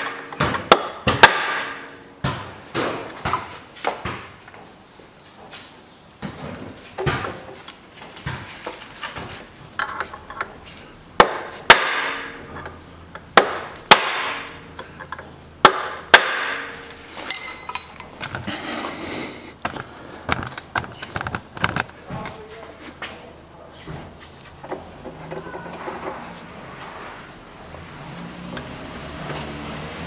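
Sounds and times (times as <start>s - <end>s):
hammer striking metal: 0.0s - 2.0s, 11.2s - 12.6s, 13.4s - 14.7s, 15.6s - 18.2s
metallic ring and clinks: 9.8s - 10.6s, 17.2s - 18.2s.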